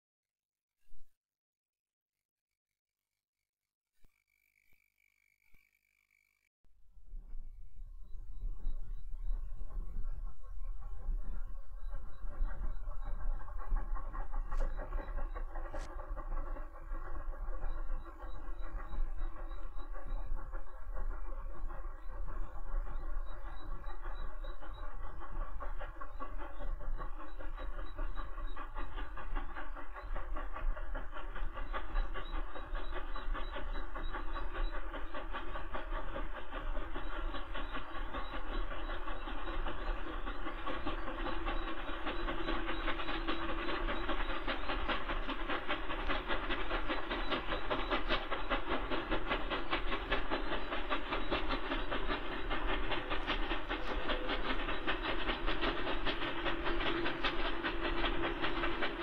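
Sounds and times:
steam locomotive exhaust chatter: 7.3s - 59.0s
steam hiss: 12.3s - 59.0s.

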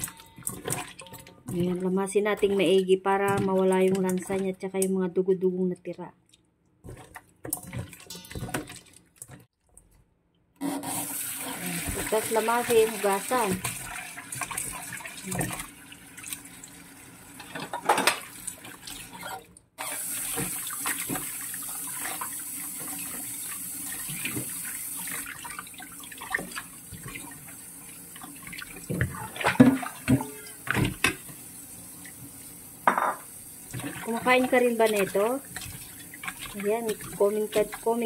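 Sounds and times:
water sloshing and splashing: 0.0s - 4.8s, 6.2s - 10.0s, 11.5s - 31.4s, 33.6s - 38.0s
tap water running into bowl: 10.9s - 38.0s.

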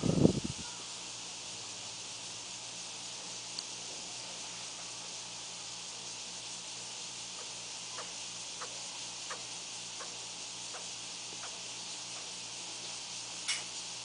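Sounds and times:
room tone hiss: 0.0s - 14.0s
faint evenly spaced ticks: 5.6s - 14.0s.

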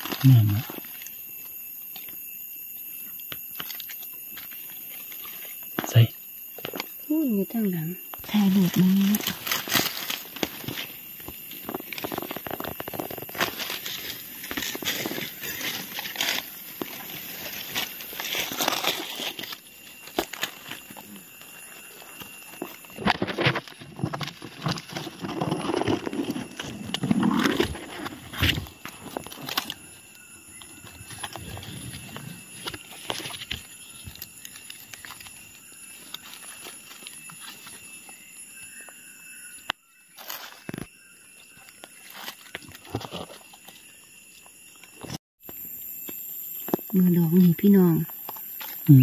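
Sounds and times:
dry leaves rustling: 8.3s - 26.6s, 32.0s - 38.3s.

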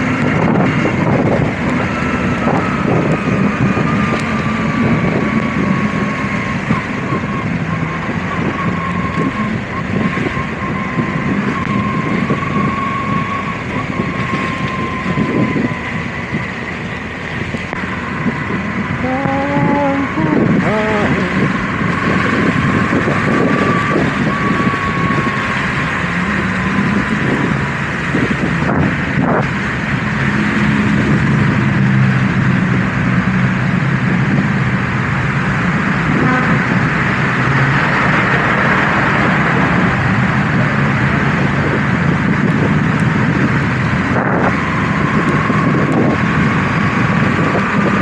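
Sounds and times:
wind rushing over microphone: 0.0s - 48.0s
motorcycle engine running: 17.2s - 38.0s.

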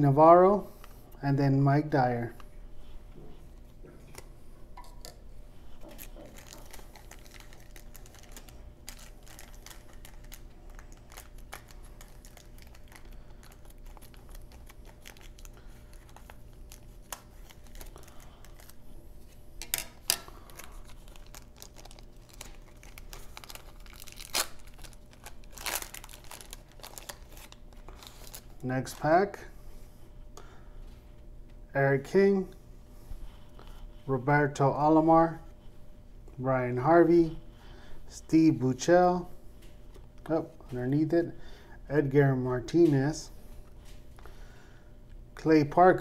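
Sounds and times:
wrapper crinkling: 5.8s - 18.8s, 19.6s - 29.0s.

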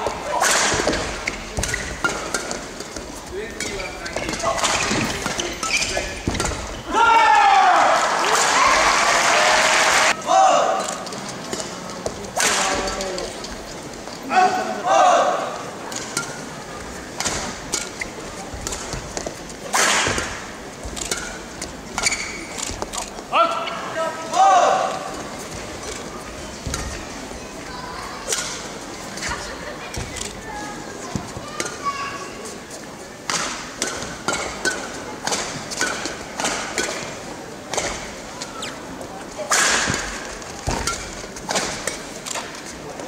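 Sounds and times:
racket hitting shuttlecock: 0.4s - 6.7s, 18.6s - 22.8s, 33.3s - 38.1s
shoes squeaking on court: 0.8s - 6.9s, 16.8s - 23.9s, 37.8s - 39.0s
shoe squeaks: 3.6s - 6.9s, 22.0s - 22.8s, 38.4s - 38.9s.

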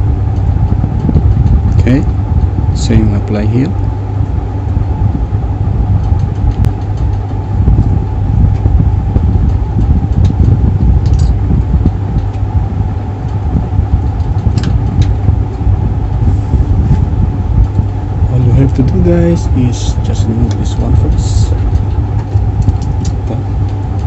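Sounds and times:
low rumble of machinery: 0.0s - 24.0s
wires clicking in hands: 9.5s - 11.4s, 14.2s - 15.6s.

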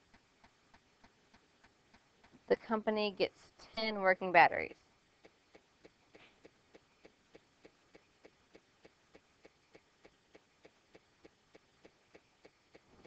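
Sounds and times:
faint ticking: 5.1s - 13.0s.

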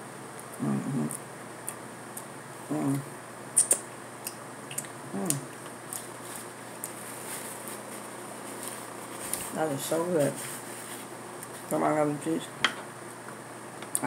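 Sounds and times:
closed-mouth hums: 0.4s - 7.0s
lip smacks while chewing: 3.6s - 6.1s.

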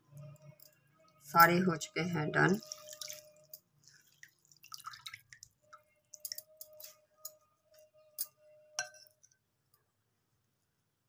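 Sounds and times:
water dripping in glass bowl: 2.5s - 6.8s.

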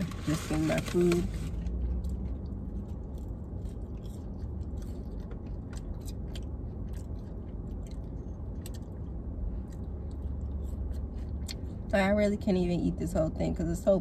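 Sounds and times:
low rumble: 0.0s - 14.0s
person chewing crunchy food: 1.5s - 11.9s.

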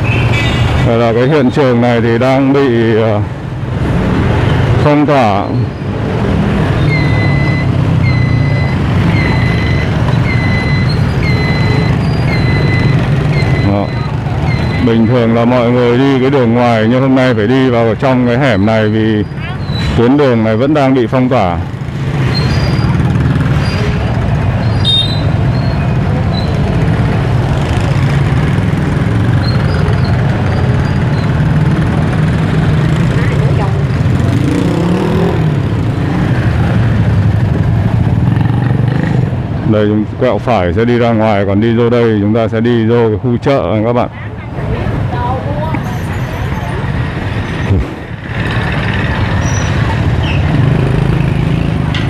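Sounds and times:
small engines rumbling: 0.0s - 52.0s
high squeal: 6.8s - 15.3s
high-pitched electronic beeps: 6.8s - 15.4s.

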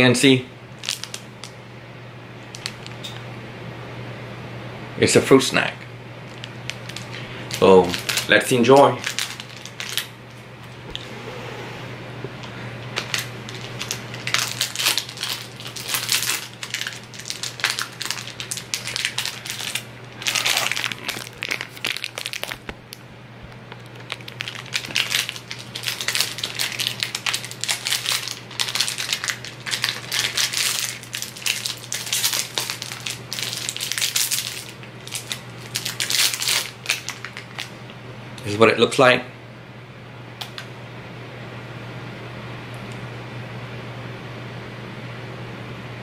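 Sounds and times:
plastic wrapper crinkling: 0.8s - 1.5s, 2.5s - 3.2s, 6.3s - 10.4s, 12.8s - 37.8s.

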